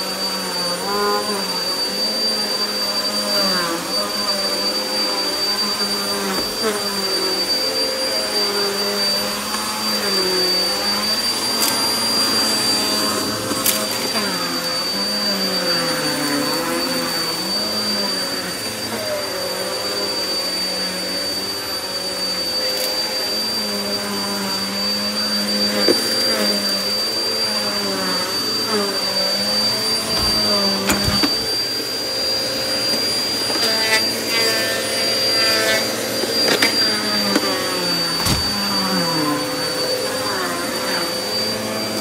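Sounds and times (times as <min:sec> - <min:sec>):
vacuum cleaner running: 0:00.0 - 0:42.0
grit crunching in vacuum: 0:29.6 - 0:32.0, 0:35.7 - 0:39.4.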